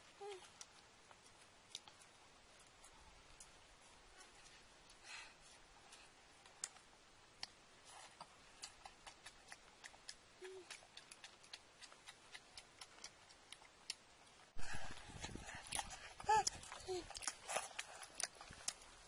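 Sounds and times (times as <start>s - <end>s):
chewing: 0.3s - 19.0s
eating clicks and smacks: 6.4s - 14.4s, 15.2s - 19.0s.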